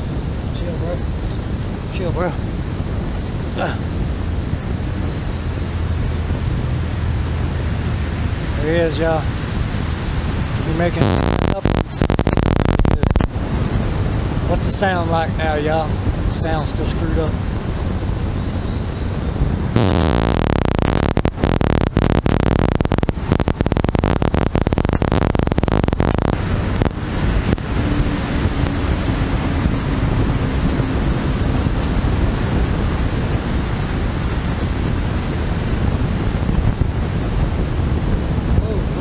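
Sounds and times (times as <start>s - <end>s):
faint high whine: 0.0s - 39.0s
steady rushing noise: 0.0s - 39.0s
crackling distorted static: 1.8s - 17.3s, 19.4s - 29.9s.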